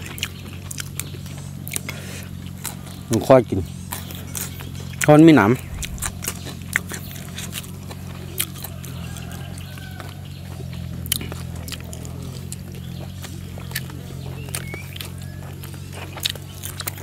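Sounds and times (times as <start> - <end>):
wet chewing mouth clicks: 0.0 - 3.0, 3.9 - 9.0, 10.3 - 17.0
low hum: 3.9 - 8.6.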